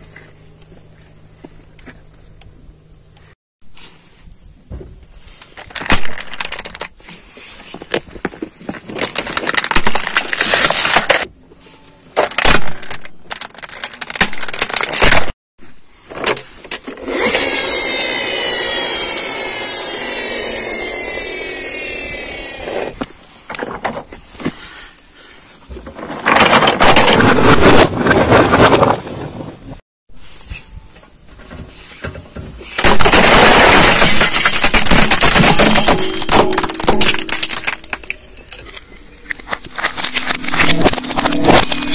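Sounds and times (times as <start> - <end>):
plastic toys crunching under tyre: 5.4 - 11.4, 12.1 - 15.4, 25.7 - 29.6, 32.6 - 41.9.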